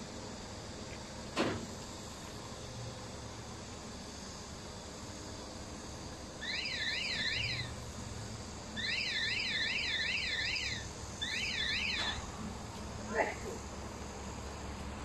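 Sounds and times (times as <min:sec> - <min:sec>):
electronic warning alarm warbling: 0:06.4 - 0:07.8, 0:08.8 - 0:12.3.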